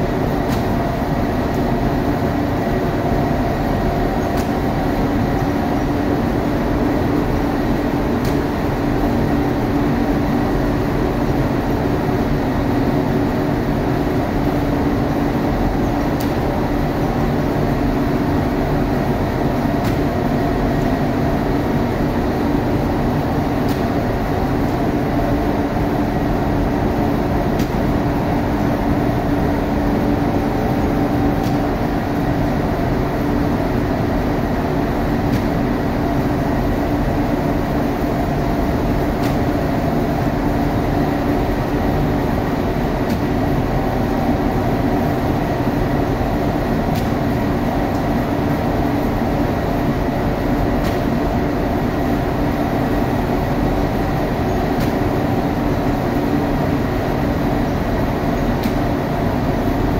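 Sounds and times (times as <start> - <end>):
oven machine hum: 0.0 - 59.9.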